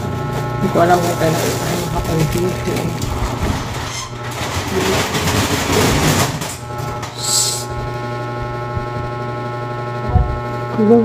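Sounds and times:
plastic packaging crinkling: 0:00.6 - 0:06.7
short hissing swish: 0:07.2 - 0:07.7.

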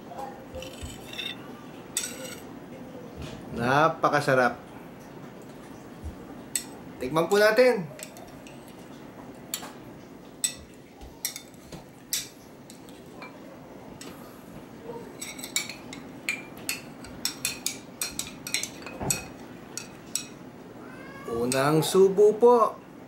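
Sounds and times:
metal spoon clinking on bowl: 0:00.6 - 0:02.5, 0:10.4 - 0:13.4, 0:15.2 - 0:20.4.

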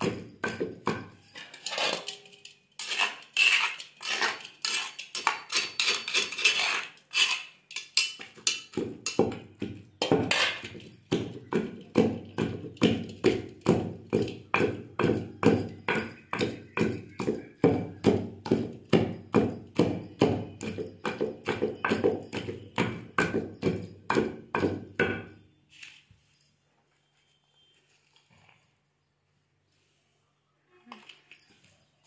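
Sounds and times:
pestle pounding in stone mortar: 0:00.0 - 0:01.4, 0:08.1 - 0:25.4.

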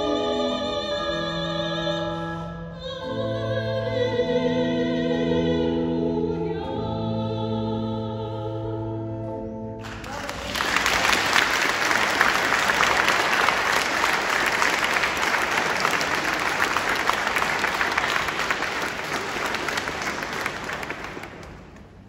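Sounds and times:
audience applauding: 0:09.8 - 0:22.0.

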